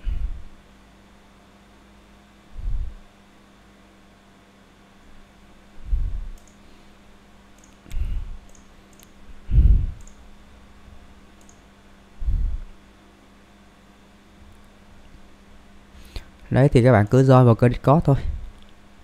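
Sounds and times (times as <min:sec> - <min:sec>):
dull low thumps: 0:02.6 - 0:03.0, 0:05.8 - 0:06.4, 0:09.5 - 0:10.0, 0:12.2 - 0:12.7
computer mouse clicks: 0:06.3 - 0:06.6, 0:07.5 - 0:09.2, 0:10.0 - 0:10.2, 0:11.4 - 0:11.7.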